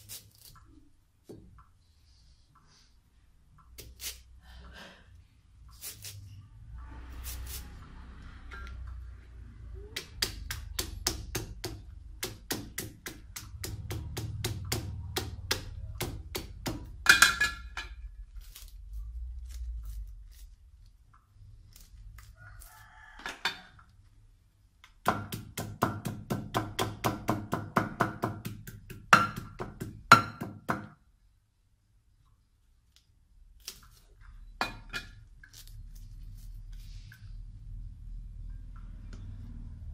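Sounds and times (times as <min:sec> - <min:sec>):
cleaver chopping on wooden board: 0:25.0 - 0:30.9.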